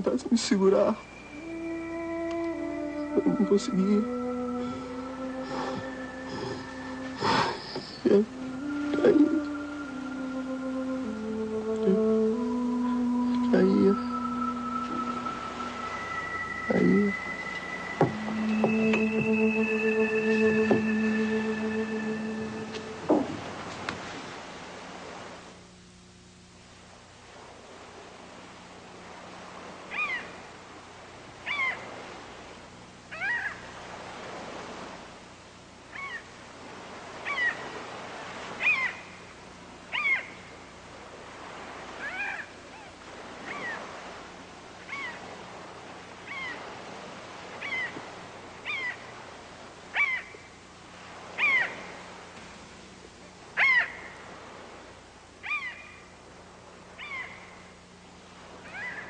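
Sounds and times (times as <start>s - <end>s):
soft hiss: 0.0s - 59.0s
animal calling: 0.8s - 11.1s, 29.9s - 30.3s, 31.4s - 31.9s, 33.1s - 33.6s, 35.9s - 36.3s, 37.2s - 37.7s, 38.6s - 39.1s, 39.9s - 40.4s, 42.0s - 43.9s, 44.9s - 45.2s, 46.3s - 46.7s, 47.6s - 48.0s, 48.6s - 49.0s, 49.9s - 50.4s, 51.3s - 52.0s, 53.6s - 54.1s, 55.4s - 56.0s, 57.0s - 57.5s, 58.6s - 59.0s.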